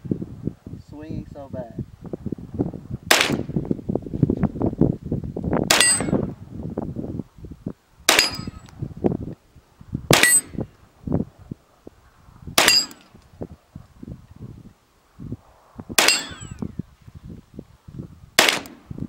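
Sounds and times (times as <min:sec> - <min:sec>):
rifle shots: 0:03.1 - 0:03.5, 0:05.7 - 0:06.2, 0:08.1 - 0:08.6, 0:10.1 - 0:10.6, 0:12.6 - 0:13.1, 0:16.0 - 0:16.6, 0:18.4 - 0:18.8
short metallic ring: 0:08.2 - 0:08.7, 0:12.6 - 0:13.1, 0:16.0 - 0:16.6.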